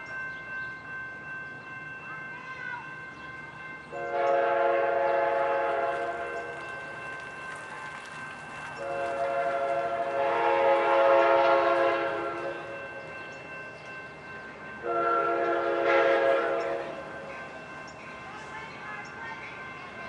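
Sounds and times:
locomotive air horn blasts: 4.0s - 6.4s, 8.8s - 12.6s, 14.8s - 16.9s.

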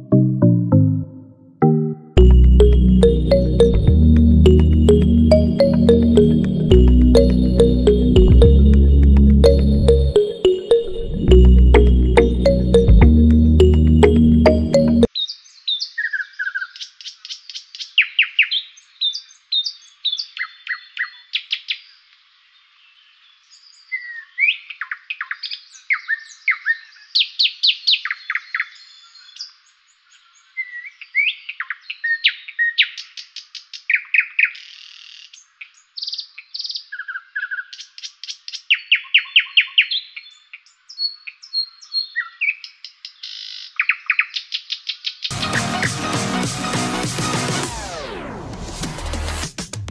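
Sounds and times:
songbirds singing: 15.2s - 45.3s.

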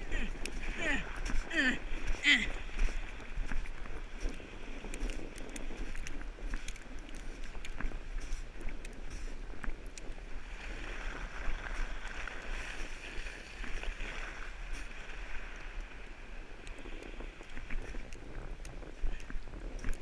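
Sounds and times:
wind on microphone: 0.0s - 20.0s.

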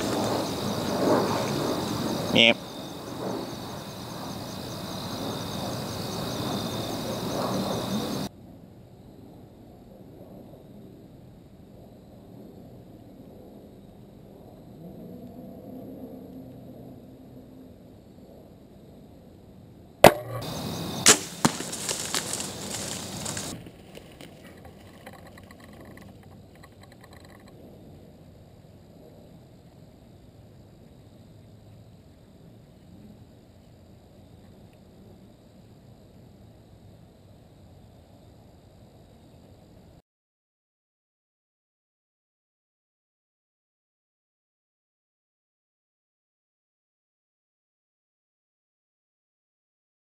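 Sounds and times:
crickets chirping: 0.0s - 40.0s
bow string crack: 20.0s - 27.4s
deer crashing through dry brush: 20.1s - 24.9s.

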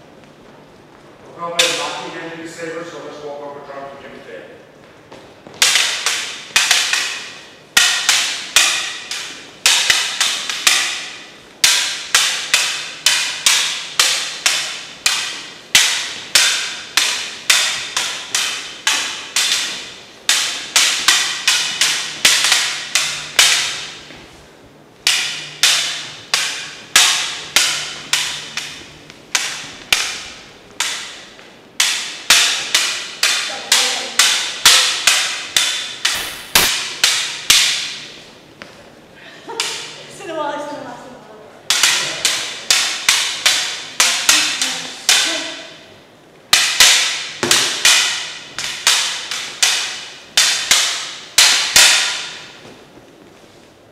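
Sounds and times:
plastic toy swords clacking: 5.6s - 24.1s, 25.0s - 38.0s, 41.7s - 45.4s, 46.5s - 52.7s.

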